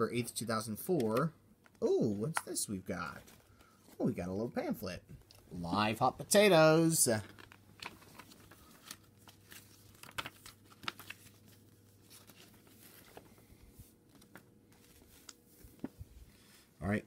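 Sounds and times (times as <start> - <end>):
paper rustling and crinkling: 7.1 - 16.7.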